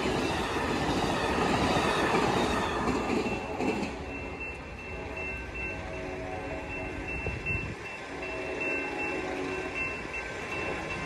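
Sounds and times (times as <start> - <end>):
passenger train rolling past: 0.0 - 11.0.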